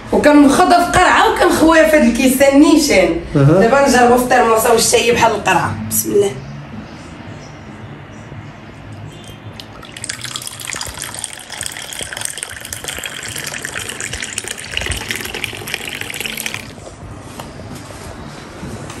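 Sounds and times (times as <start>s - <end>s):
frothy coffee pouring into glass: 9.2s - 16.8s.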